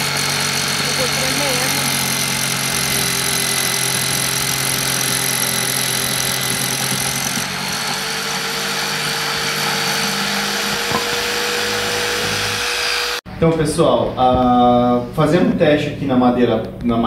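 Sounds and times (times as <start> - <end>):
jigsaw cutting wood: 0.0 - 13.2.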